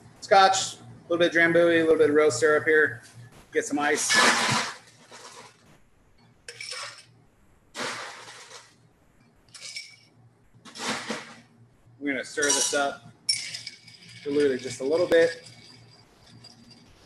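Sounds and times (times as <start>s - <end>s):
ice cubes clattering into glass: 7.8s - 8.7s.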